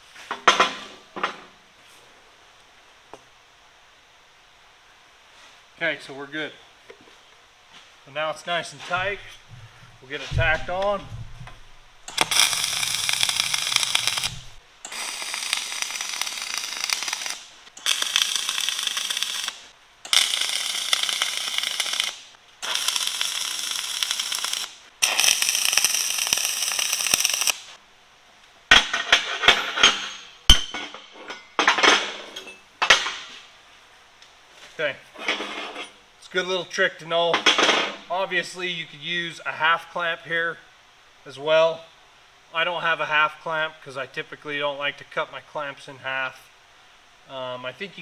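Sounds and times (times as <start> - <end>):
welding arc crackling and hissing: 8.6 - 27.8.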